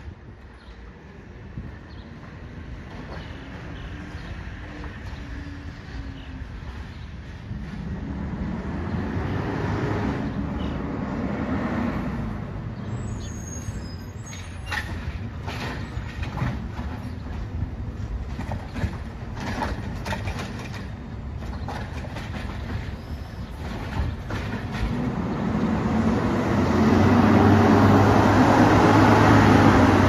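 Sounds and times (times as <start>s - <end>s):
high brake squeal: 13.0s - 15.0s.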